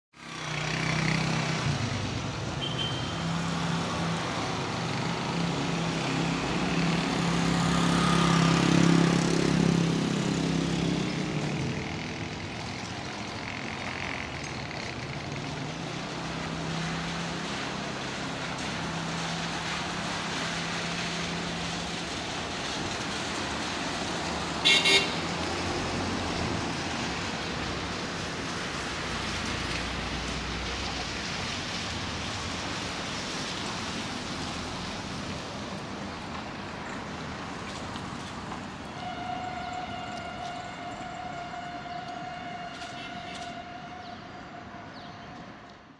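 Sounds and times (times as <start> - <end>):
road traffic noise: 0.1 - 45.9
train horn toot: 24.6 - 25.3, 38.9 - 45.9
train rolling past: 25.2 - 45.9.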